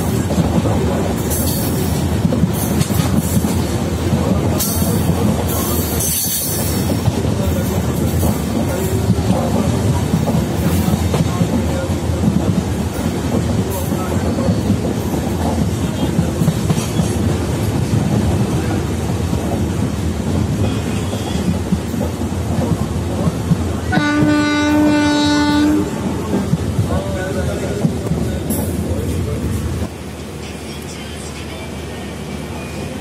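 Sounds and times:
train wheels rumbling on rails: 0.0s - 33.0s
train horn: 23.8s - 26.3s.

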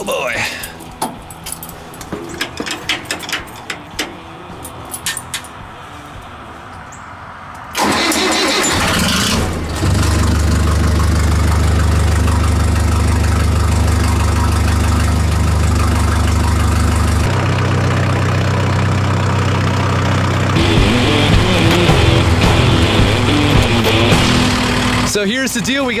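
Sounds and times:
tractor engine idling: 0.1s - 6.9s, 7.7s - 26.0s
engine starter cranking: 7.7s - 17.3s.

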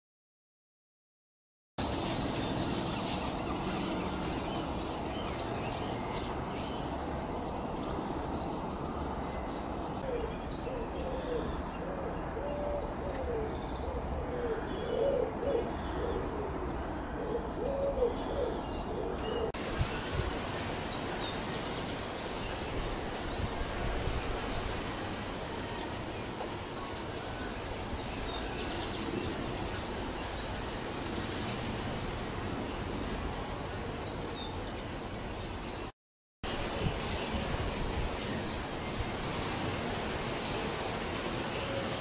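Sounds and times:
small birds chirping: 1.8s - 35.9s
pigeon cooing: 10.0s - 16.6s, 17.2s - 19.5s.

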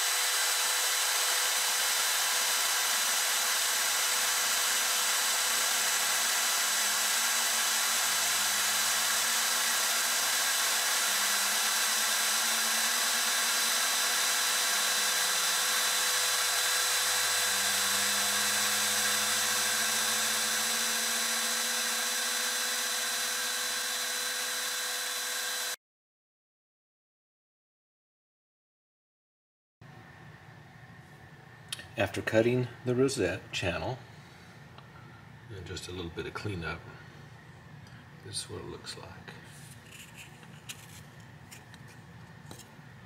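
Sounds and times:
router spindle high whine: 0.0s - 25.8s.

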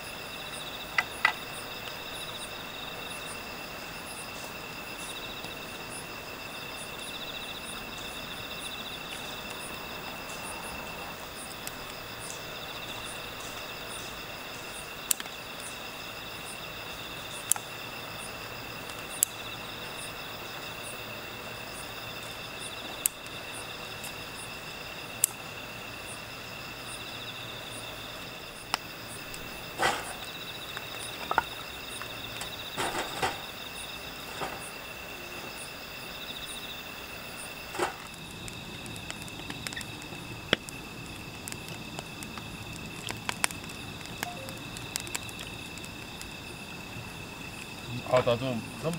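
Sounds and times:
campfire popping: 0.0s - 48.9s
crickets chirping: 0.0s - 48.9s
logs knocking and scraping: 29.3s - 33.6s, 34.2s - 34.8s, 37.6s - 38.2s.

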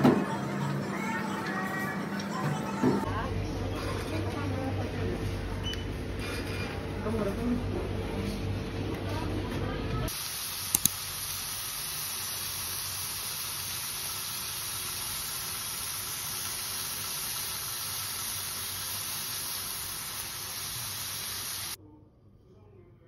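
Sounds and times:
tofu sizzling in a pan: 10.1s - 21.8s.

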